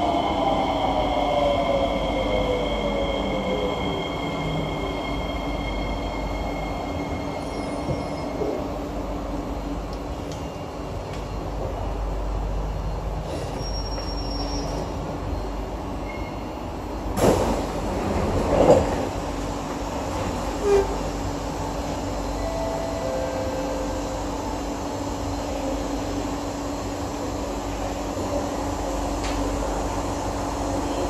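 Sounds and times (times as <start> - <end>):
metro train braking to stop: 0.0 - 31.0
train doors sliding open: 13.2 - 15.2, 17.1 - 24.1.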